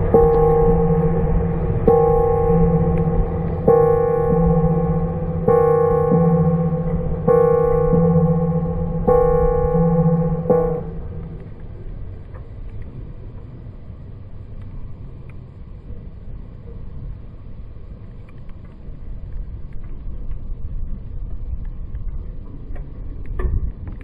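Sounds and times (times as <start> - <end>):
low thumps: 0.0 - 12.1
steady low rumble: 0.0 - 24.0.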